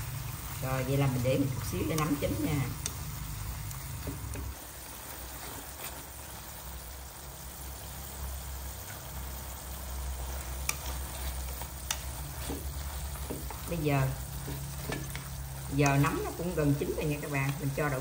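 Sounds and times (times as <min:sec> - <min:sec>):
mushrooms sizzling in a frying pan: 0:00.0 - 0:18.0
chopsticks clicking against a pan: 0:01.8 - 0:04.5, 0:10.4 - 0:13.7, 0:14.4 - 0:16.4, 0:17.0 - 0:17.8.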